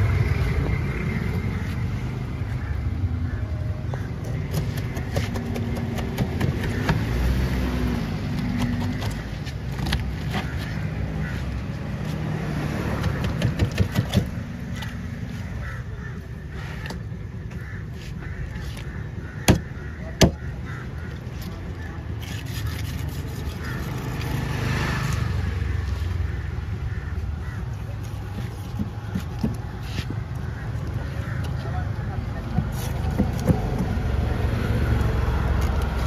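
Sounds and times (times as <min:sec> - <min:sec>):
knife chopping flesh: 0:04.5 - 0:07.1
knife scraping strokes: 0:22.2 - 0:24.3
blade knocking on wood: 0:32.4 - 0:34.0.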